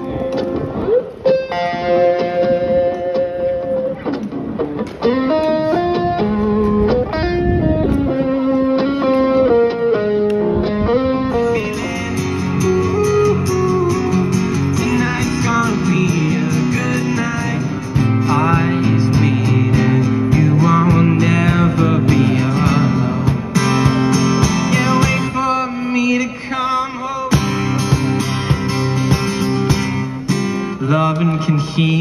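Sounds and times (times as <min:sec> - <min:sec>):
acoustic guitar strumming: 0:00.0 - 0:32.0
man singing: 0:11.2 - 0:23.5, 0:24.5 - 0:27.6, 0:30.7 - 0:32.0.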